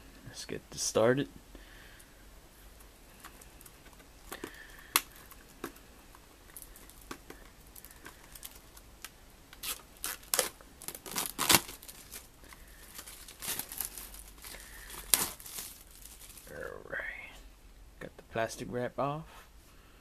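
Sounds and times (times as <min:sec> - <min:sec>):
plastic wrap crinkling and tearing: 0:06.5 - 0:16.7.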